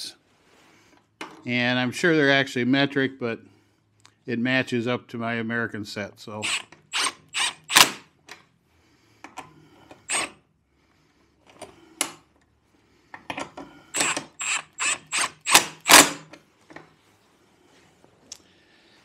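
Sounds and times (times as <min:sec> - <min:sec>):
cordless power tool whining: 0:13.9 - 0:16.2.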